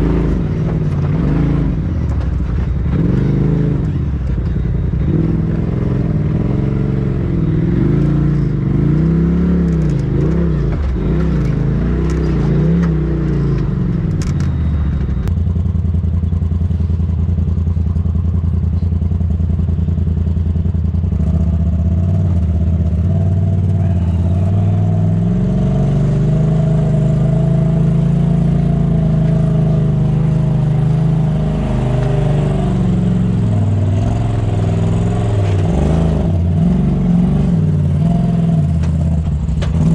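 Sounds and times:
off-road vehicle engine revving: 0.0s - 39.9s
steady engine drone: 0.0s - 39.9s.

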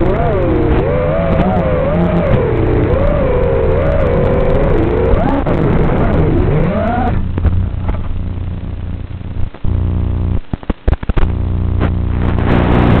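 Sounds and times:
drone motor whine: 0.0s - 10.3s
steady low buzz: 0.0s - 13.0s.

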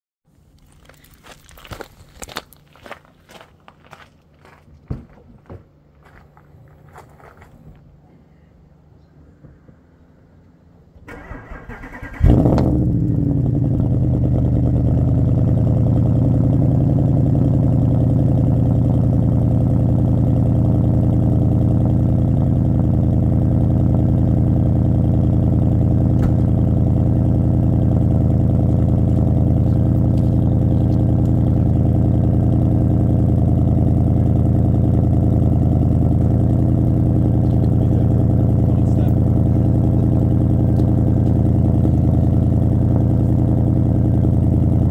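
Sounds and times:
car engine idling: 6.8s - 44.9s
engine revving on start: 11.1s - 12.8s.

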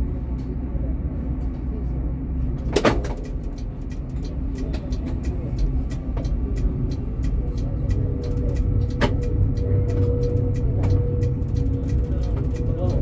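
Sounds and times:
tram rumbling: 0.0s - 13.0s
light regular ticking: 3.0s - 13.0s
steady tone: 3.6s - 13.0s.

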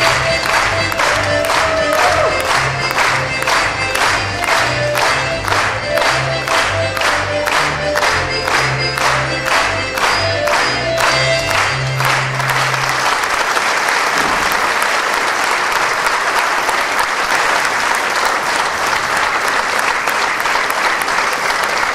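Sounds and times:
folk band playing dance tune: 0.0s - 13.3s
audience applause: 0.0s - 21.9s.

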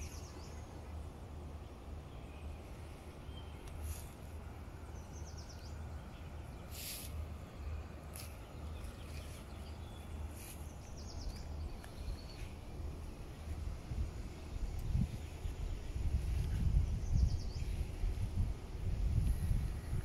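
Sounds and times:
wind rumble on microphone: 7.8s - 20.0s.

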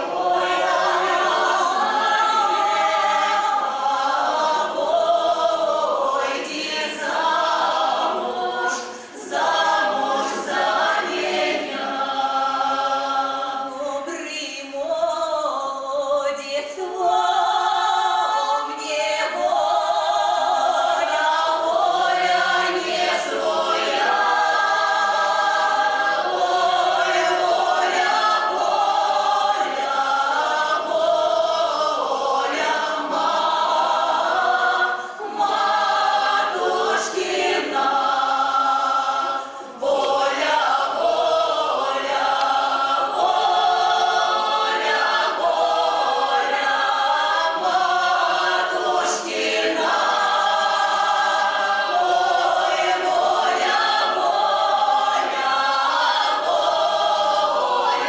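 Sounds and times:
folk choir singing in harmony: 0.0s - 58.0s.

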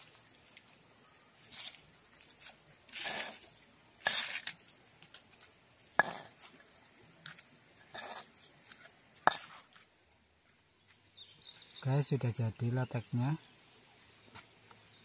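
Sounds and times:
wet scraping in a stone mortar: 1.4s - 9.9s.

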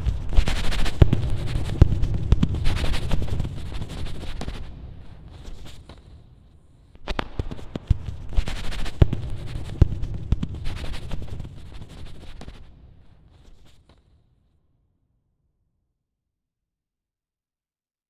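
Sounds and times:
low rumble: 0.0s - 5.2s.

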